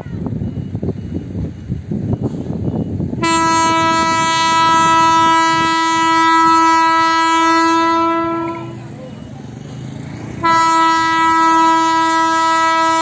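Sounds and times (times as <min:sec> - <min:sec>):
low rumble of passing train: 0:00.0 - 0:13.0
locomotive horn blast: 0:03.2 - 0:09.0, 0:10.4 - 0:13.0.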